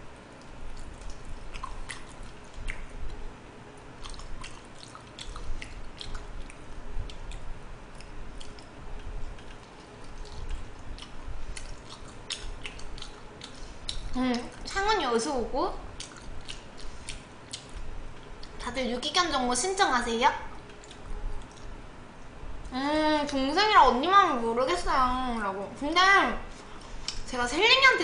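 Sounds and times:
chewing and biting: 0.3s - 14.8s, 15.9s - 18.6s, 20.6s - 21.8s.

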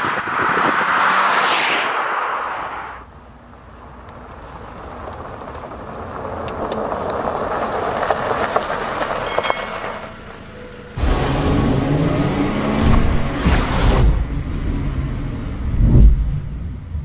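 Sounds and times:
car tyres crunching on gravel: 0.0s - 11.1s
small stones pinging: 4.5s - 10.1s.

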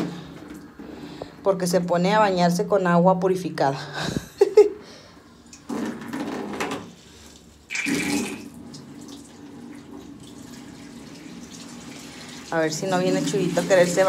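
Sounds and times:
tap water filling container: 5.5s - 14.0s.

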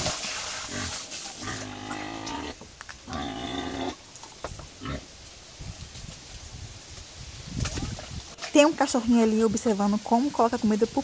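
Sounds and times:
pigs calling: 0.6s - 4.0s.

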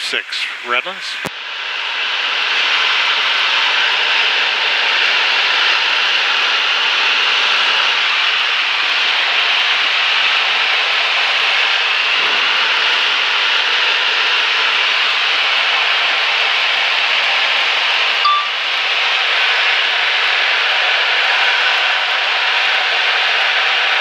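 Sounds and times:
aircraft engine drone in cabin: 0.0s - 24.0s
short high tone: 18.2s - 18.7s.

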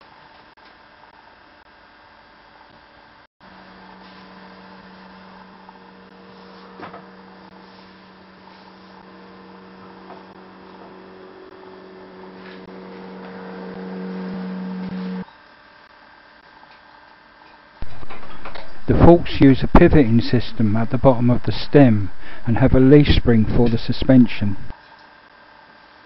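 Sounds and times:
steady electrical hum: 0.0s - 26.0s.

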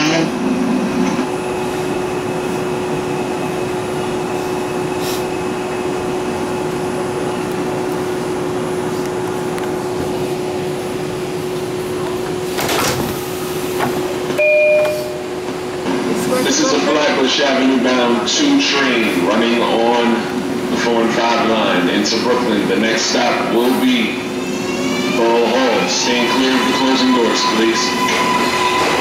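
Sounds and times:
electronic door chime: 14.4s - 15.2s.

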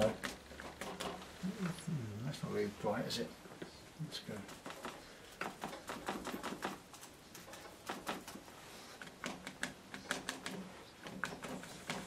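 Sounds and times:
sponge tapping paint onto paper: 4.5s - 12.0s.

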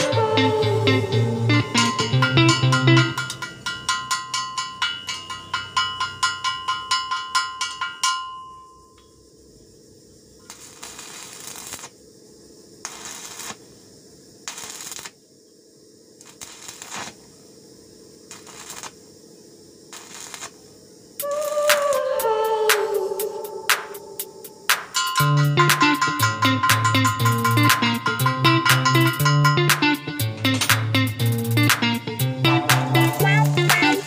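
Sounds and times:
plucked-string background music: 0.0s - 3.4s, 25.2s - 34.0s
arc welder crackling and hissing: 10.2s - 22.1s, 30.2s - 34.0s.

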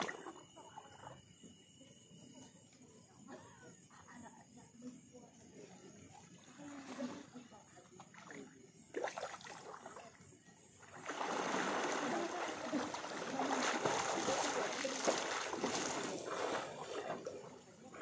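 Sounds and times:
swimmer splashing water: 0.0s - 0.7s, 6.4s - 18.0s.

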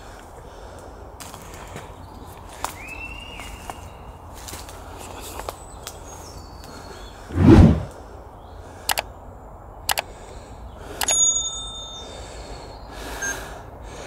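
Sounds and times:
short chime: 11.1s - 12.2s.

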